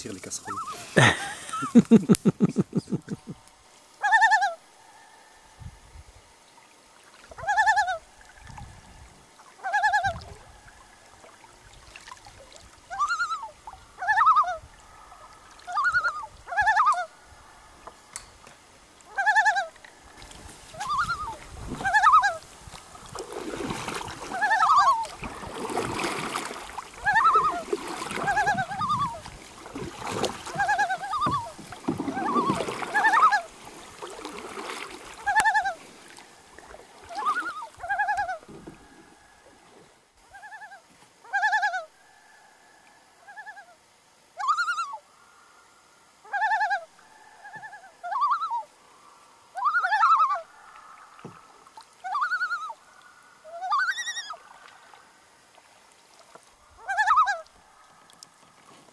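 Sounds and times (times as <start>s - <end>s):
loon calling: 4.0s - 4.6s, 7.4s - 8.0s, 9.6s - 10.4s, 12.9s - 17.7s, 19.1s - 19.8s, 20.7s - 22.4s, 24.2s - 25.2s, 27.0s - 29.3s, 30.2s - 33.5s, 35.1s - 35.8s, 37.1s - 39.3s, 40.3s - 41.9s, 44.4s - 45.0s, 46.2s - 48.7s, 49.6s - 51.4s, 52.0s - 52.8s, 53.4s - 54.4s, 56.8s - 57.5s
paddle strokes splashing: 9.3s - 13.8s, 19.6s - 40.0s.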